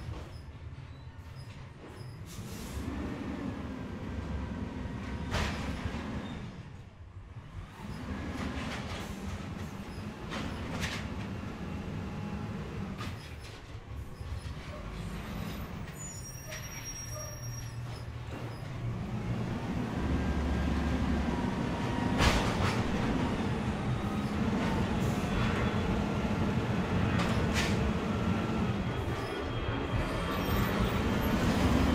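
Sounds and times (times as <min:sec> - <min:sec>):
garbage truck engine running: 0:18.1 - 0:31.9.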